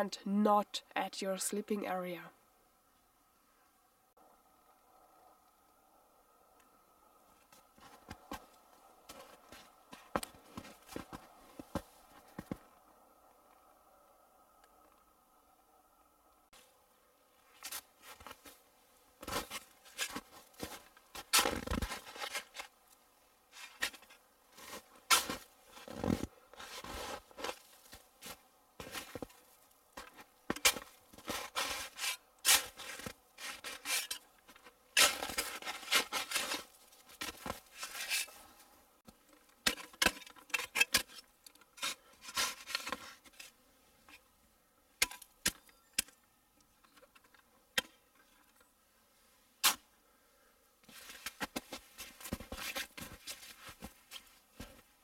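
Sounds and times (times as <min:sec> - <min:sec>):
snow shovel scraping snow: 0:23.5 - 0:29.3, 0:30.6 - 0:34.2, 0:35.0 - 0:38.5.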